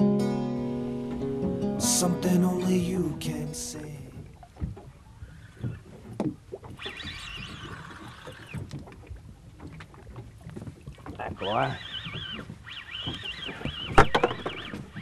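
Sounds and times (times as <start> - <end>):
song with guitar: 0.0 - 4.3
wind: 0.0 - 15.0
water sloshing against hull: 0.8 - 15.0.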